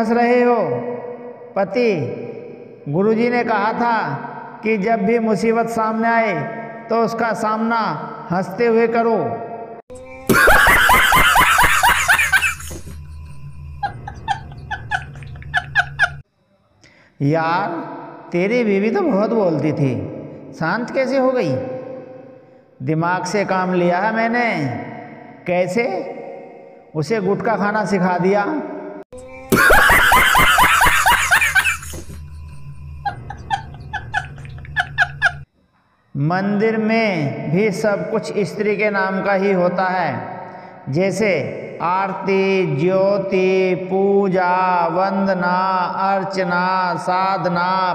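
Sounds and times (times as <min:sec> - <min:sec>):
man laughing hard: 0:10.2 - 0:13.0, 0:13.8 - 0:16.2, 0:29.4 - 0:32.2, 0:33.0 - 0:35.5.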